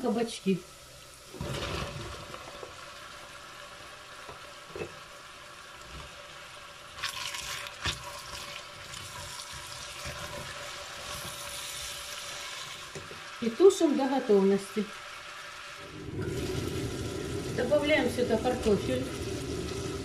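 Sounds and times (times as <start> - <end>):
quiet sizzle: 0.0 - 20.0
stirring with wooden spatula: 7.0 - 11.7.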